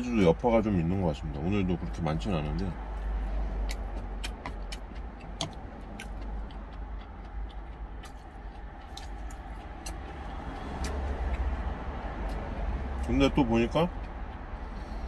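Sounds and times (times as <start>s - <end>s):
low vehicle rumble: 0.0s - 15.0s
chewing with mouth closed: 2.4s - 13.1s.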